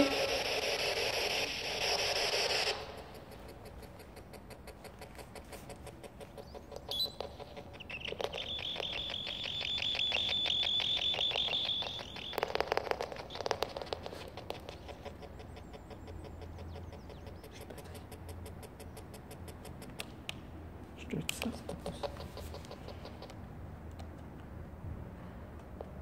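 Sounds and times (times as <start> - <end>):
rapid electronic clicking: 0.0 - 20.1.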